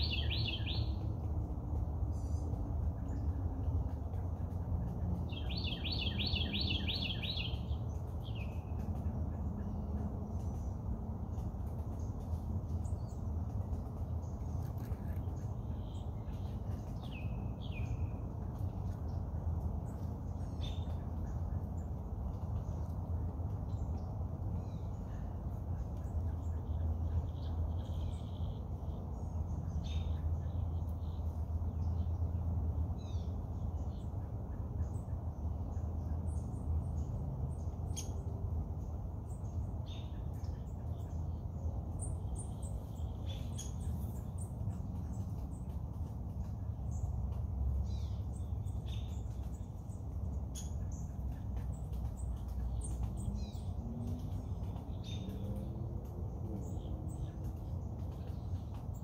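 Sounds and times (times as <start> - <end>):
bird chirps and calls: 0.0 - 1.1, 5.2 - 9.8
low rumble of breeze: 0.0 - 59.0.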